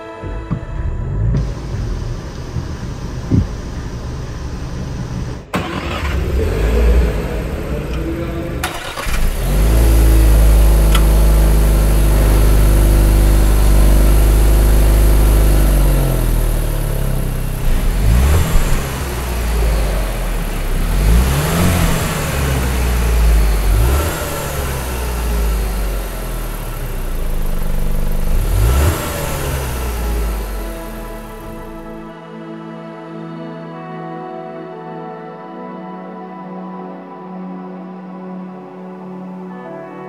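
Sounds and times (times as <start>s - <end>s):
car engine idling and revving: 0.2s - 32.2s.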